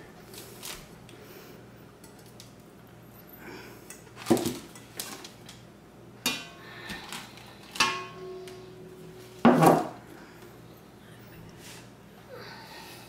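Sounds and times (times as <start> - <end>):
glass bowls clinking: 7.8 - 9.7.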